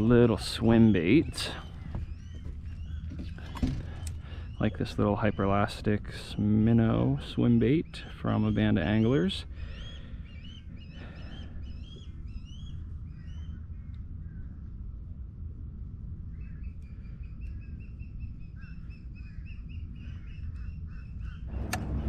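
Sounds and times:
birds chirping: 0.0 - 22.0
steady low rumble: 0.0 - 22.0
sharp click: 21.6 - 22.0.

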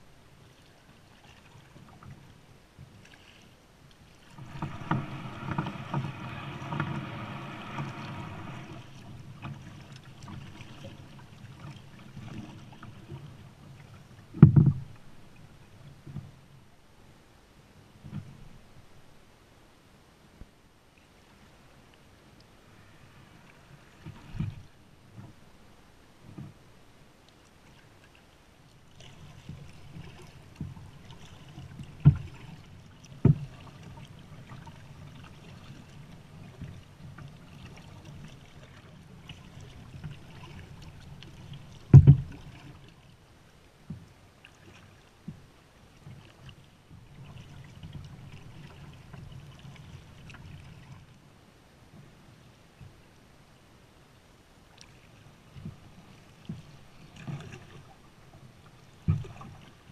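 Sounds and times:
paddle swishing in water: 0.0 - 16.7, 20.9 - 53.2, 54.6 - 59.9
paddle knocks: 4.3 - 10.5, 14.3 - 15.0, 29.4 - 33.9, 41.6 - 42.6, 59.0 - 59.7.

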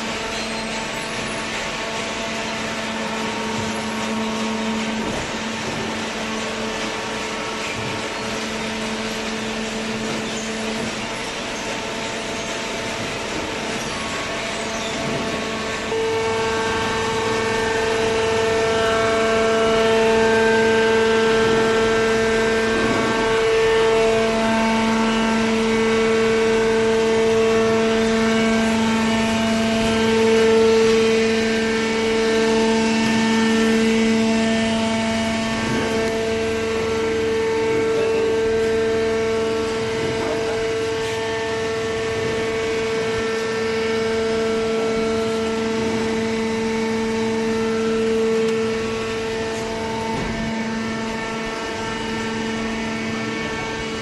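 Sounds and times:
baler machine hum and whine: 0.0 - 54.0.

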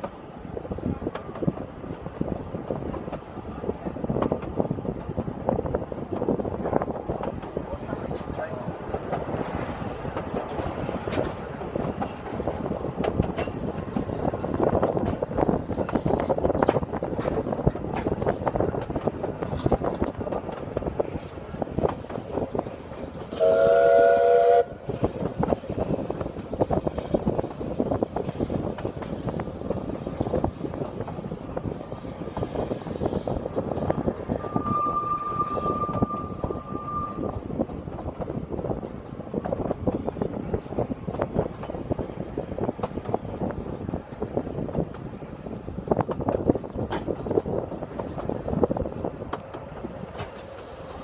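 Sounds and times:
train rumble: 0.0 - 51.0
steam locomotive whistle: 23.3 - 24.8, 34.3 - 37.4.

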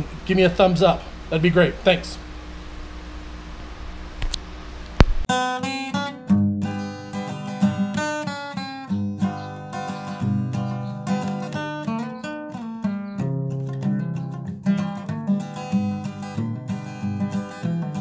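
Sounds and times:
acoustic guitar music: 5.3 - 18.0.

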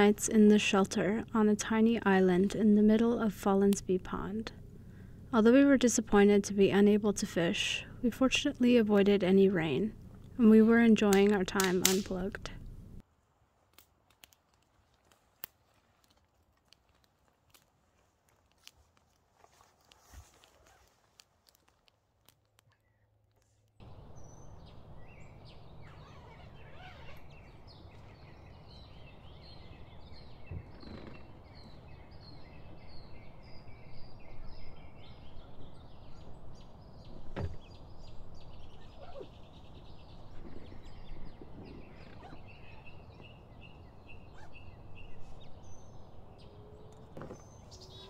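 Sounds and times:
low outdoor hum: 0.0 - 48.0
small birds chirping: 22.5 - 48.0.

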